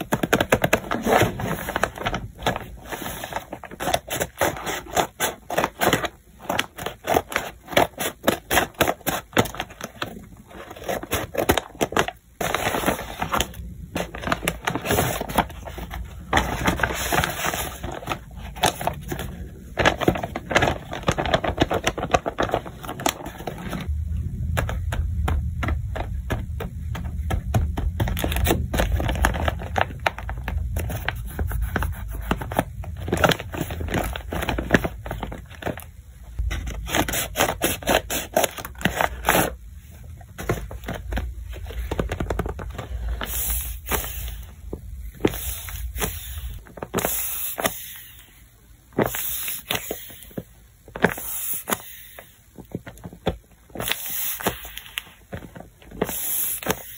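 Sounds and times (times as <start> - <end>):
paper bags crinkling: 0.0 - 24.5.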